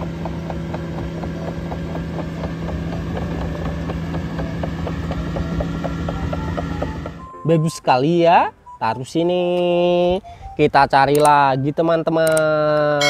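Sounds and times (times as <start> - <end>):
diesel engine hum: 0.0 - 8.9
metallic clicks and squeaks: 10.6 - 11.4.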